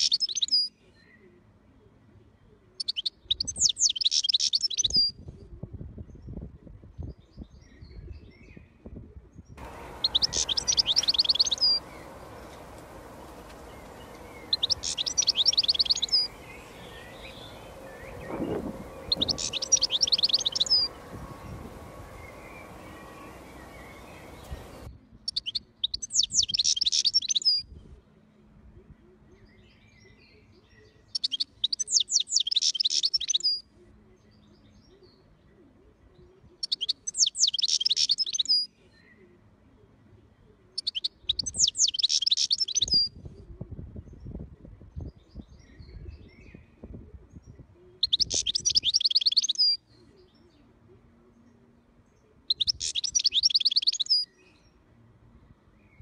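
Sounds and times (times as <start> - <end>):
bird twittering trills: 9.6 - 27.6, 48.0 - 50.5, 52.5 - 54.8.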